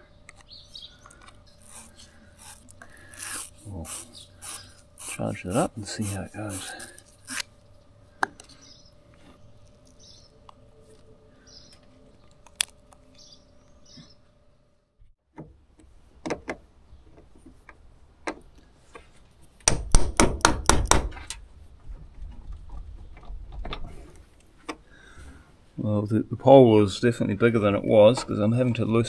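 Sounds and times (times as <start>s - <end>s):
sharp metal knocks: 19.6s - 21.2s.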